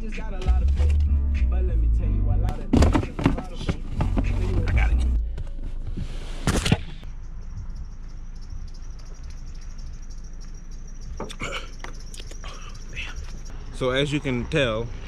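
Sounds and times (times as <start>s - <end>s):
insect chirring: 7.0s - 14.1s.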